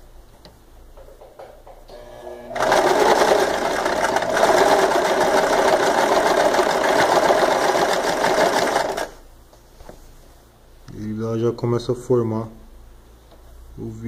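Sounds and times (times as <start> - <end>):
electric sewing machine running: 1.9 - 9.2.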